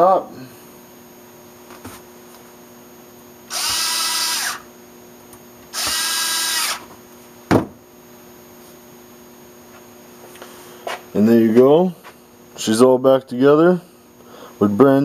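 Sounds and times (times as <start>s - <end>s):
power screwdriver spinning: 3.5s - 4.7s, 5.7s - 6.8s.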